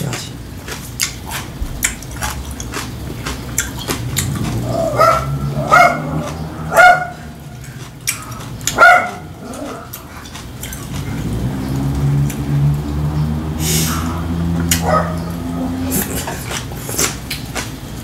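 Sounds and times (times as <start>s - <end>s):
eating sounds: 0.0s - 18.0s
dog barking: 4.8s - 7.4s, 8.7s - 9.9s, 14.7s - 15.4s.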